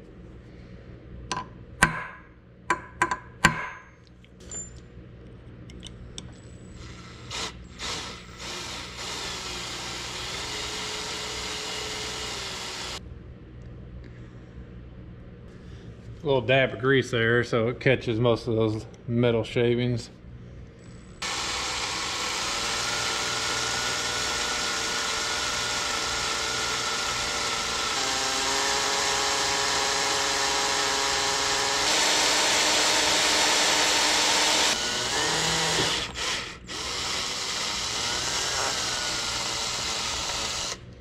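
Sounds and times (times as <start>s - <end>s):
drill motor whining: 6.8s - 13.0s, 21.2s - 40.8s.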